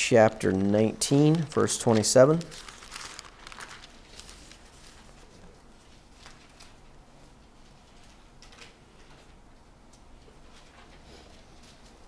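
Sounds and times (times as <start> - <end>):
pages rustling: 0.4 - 5.3.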